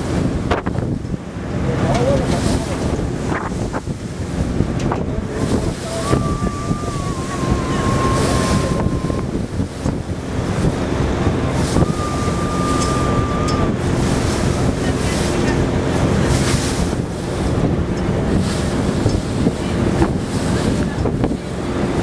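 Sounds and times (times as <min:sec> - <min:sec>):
low ship engine drone: 0:00.0 - 0:22.0
water splashing against hull: 0:00.0 - 0:22.0
wind buffeting microphone: 0:00.0 - 0:22.0
thin steady tone: 0:11.6 - 0:13.8.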